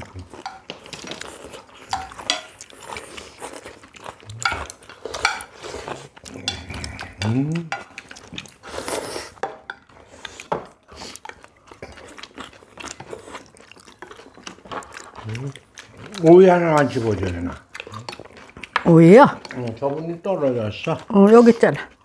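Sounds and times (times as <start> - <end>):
utensils clinking against bowls: 0.3 - 3.0, 4.4 - 8.3, 16.1 - 21.8.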